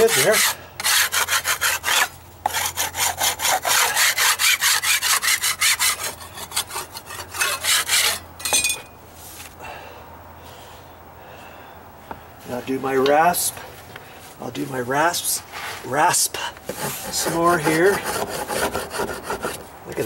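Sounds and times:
steel scraper scraping wood: 0.0s - 8.6s, 16.7s - 19.6s.

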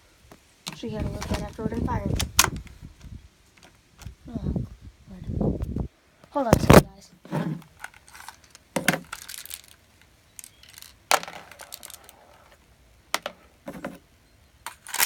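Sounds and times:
handling knocks and clicks: 10.4s - 14.0s.

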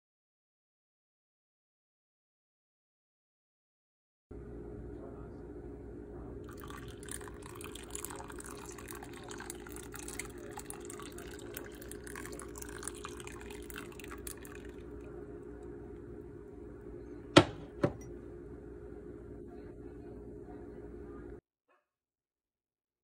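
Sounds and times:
low hum: 4.4s - 21.4s
liquid pouring into pot: 6.5s - 15.2s.

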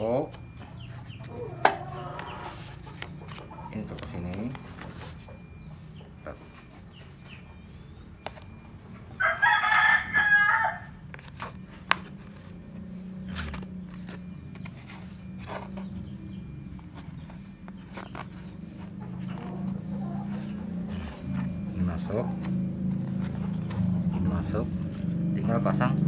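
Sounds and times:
rooster crowing: 9.2s - 11.0s.

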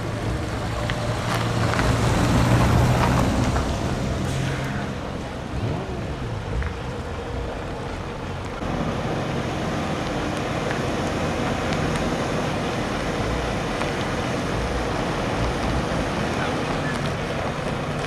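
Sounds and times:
heavy truck engine running: 0.0s - 18.0s.

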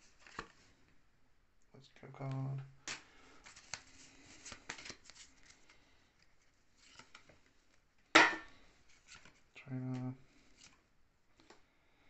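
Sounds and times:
trading cards clicking and rustling: 2.2s - 7.3s.

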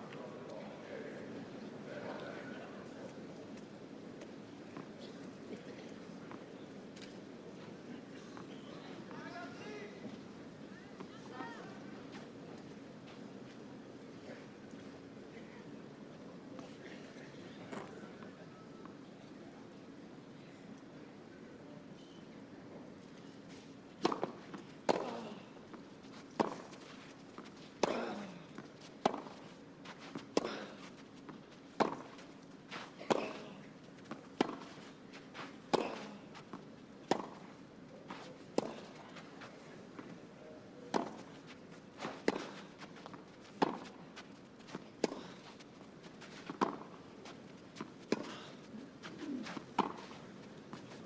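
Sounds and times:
tennis racket hitting ball: 24.0s - 25.4s, 31.8s - 32.2s, 32.8s - 34.8s, 35.7s - 36.2s, 37.1s - 37.4s, 38.6s - 39.0s, 40.9s - 41.4s, 42.0s - 44.0s, 49.6s - 50.1s.

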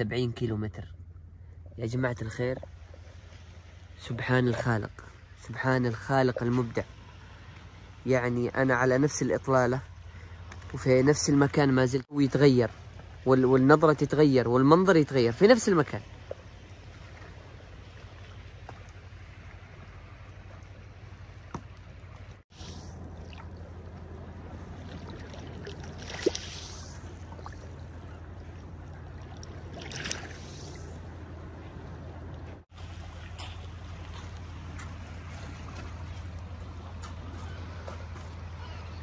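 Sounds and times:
steady low hum: 0.0s - 4.1s, 16.1s - 39.0s
waves lapping on pebbly shore: 22.5s - 28.1s.

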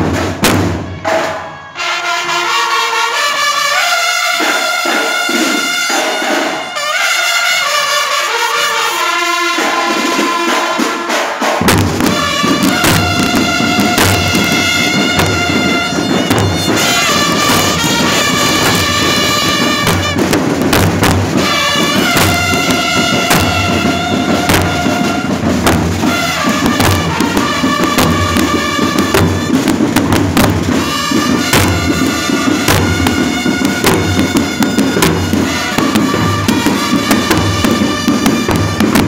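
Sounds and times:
brass section playing: 0.0s - 39.0s
bass drums and cymbals beat: 9.8s - 39.0s.

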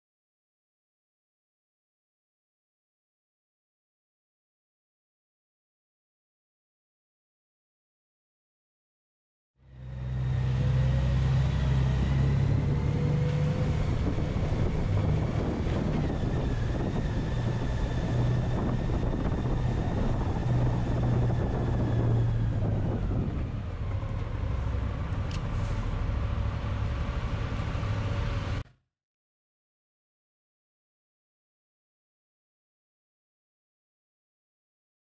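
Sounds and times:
vehicle engine rumbling: 9.6s - 28.7s.

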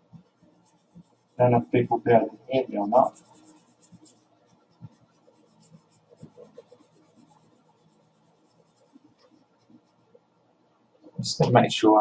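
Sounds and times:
marker drawing on paper: 0.1s - 2.0s, 2.6s - 10.2s.

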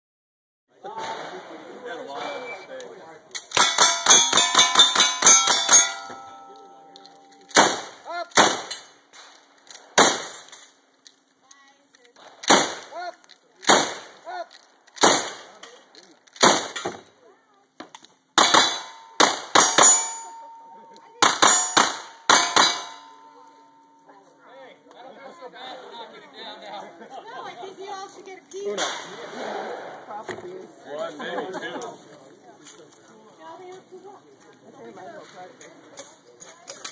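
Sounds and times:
steel target ringing: 3.5s - 7.7s, 18.4s - 24.1s
rifle shots: 7.5s - 10.5s, 12.3s - 12.9s, 13.6s - 14.2s, 15.0s - 15.6s, 16.4s - 16.9s, 18.4s - 20.2s.

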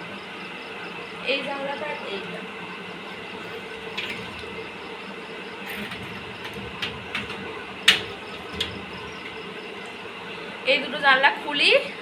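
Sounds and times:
window panes scraping and knocking: 3.5s - 4.7s, 5.6s - 9.4s.

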